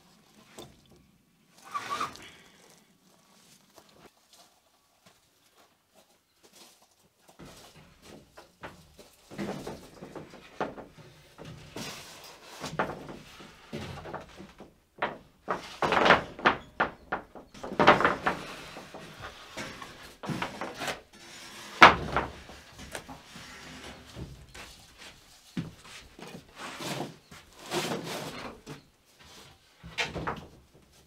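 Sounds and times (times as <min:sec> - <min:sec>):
wood boards scraping: 0:07.4 - 0:31.0.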